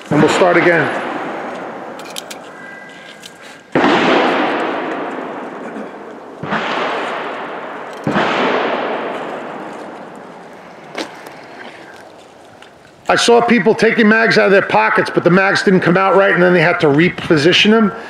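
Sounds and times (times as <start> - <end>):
gunshots echoing: 0.1 - 11.8.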